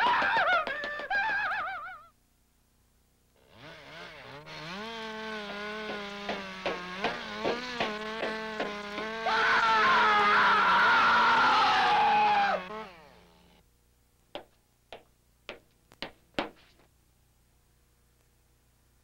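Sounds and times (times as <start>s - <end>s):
chainsaw engine running: 3.4s - 13.6s
engine pops: 5.3s - 9.2s.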